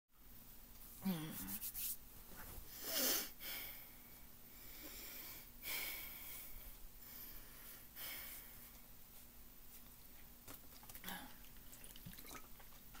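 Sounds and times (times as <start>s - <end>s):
person breathing deeply: 2.7s - 8.7s.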